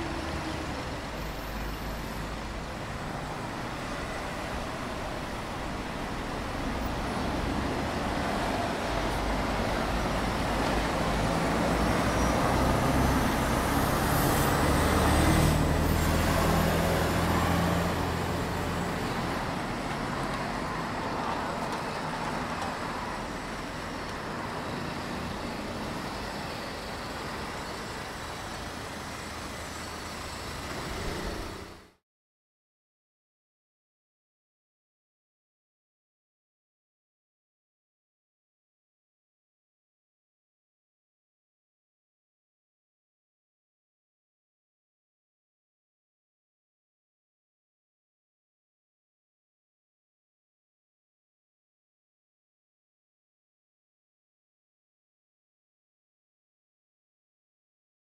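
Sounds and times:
bus engine rumbling past: 0.0s - 32.0s
passing cars and buses: 0.0s - 32.0s.

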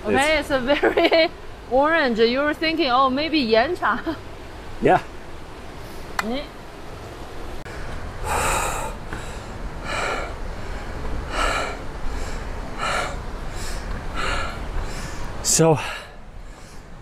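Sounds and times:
low steady rumble: 0.0s - 17.0s
heavy laboured breathing: 7.7s - 17.0s.

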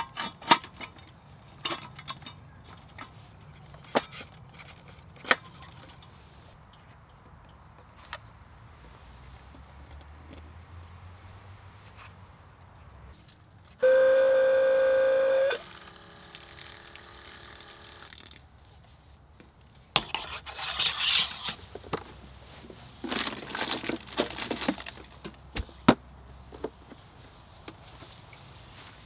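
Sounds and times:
small electric pump whining: 13.8s - 18.2s
hand rummaging in plastic cooler: 23.0s - 25.3s.

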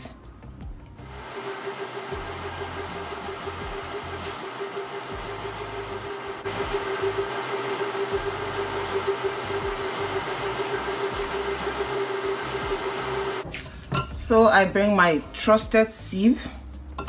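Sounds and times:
blender whirring: 1.0s - 13.4s.

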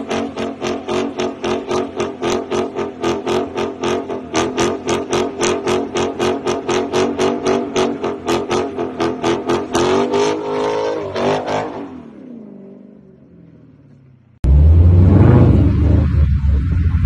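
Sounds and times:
car engine on rev limiter: 0.0s - 13.3s, 14.0s - 17.0s
deep exhaust rumble: 13.0s - 17.0s.

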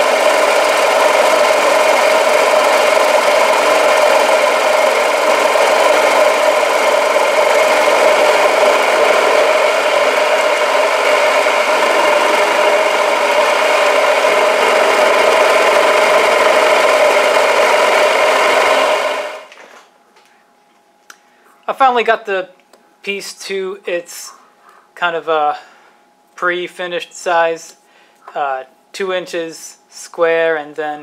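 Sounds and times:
milling machine cutting metal: 0.0s - 19.5s.

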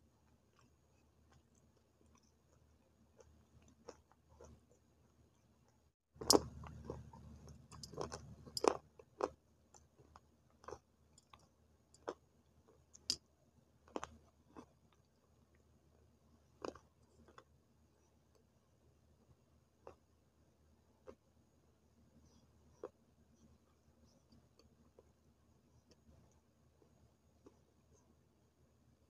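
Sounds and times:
crunchy chewing of clay sticks: 0.3s - 4.8s, 6.2s - 13.1s, 13.8s - 15.1s, 16.5s - 17.5s.

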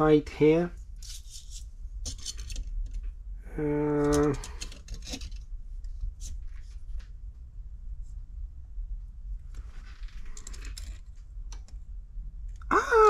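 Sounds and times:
man humming hmm: 3.4s - 4.5s, 12.7s - 13.0s.

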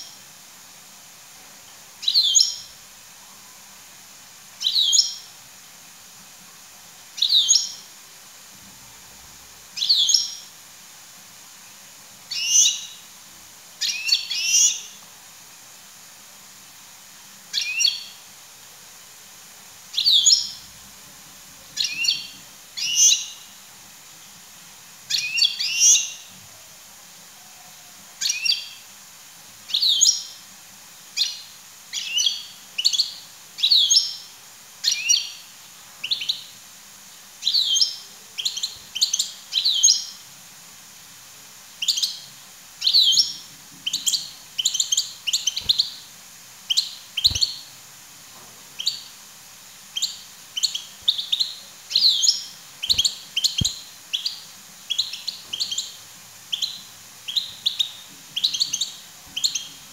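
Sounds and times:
goldfinch twittering: 43.9s - 46.0s, 46.7s - 47.6s, 50.0s - 59.7s.

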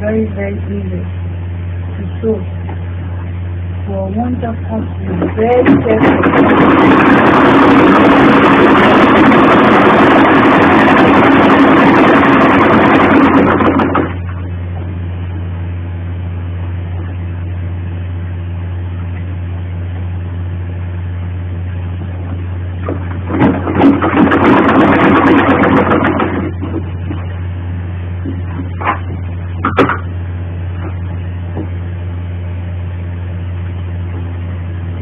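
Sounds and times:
steady low hum: 0.0s - 35.0s
sewing machine stitching: 5.6s - 14.2s, 23.3s - 26.7s.

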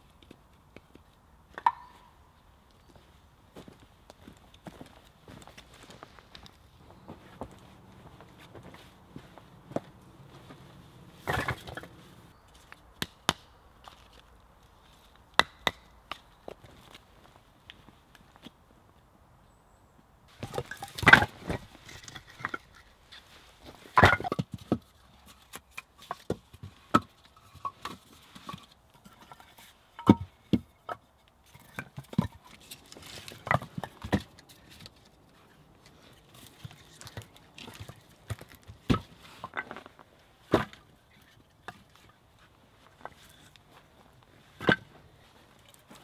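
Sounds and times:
logs knocking together: 1.5s - 2.0s, 5.3s - 12.2s, 20.3s - 42.2s, 44.5s - 45.0s.

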